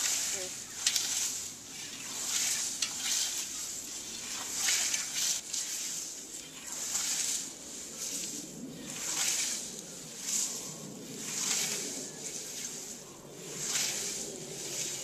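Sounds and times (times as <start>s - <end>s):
scythe swishing through grass: 0.0s - 15.0s.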